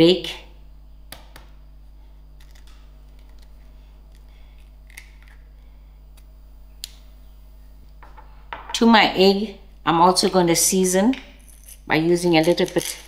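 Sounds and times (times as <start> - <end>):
eggshell cracking: 4.8 - 5.5.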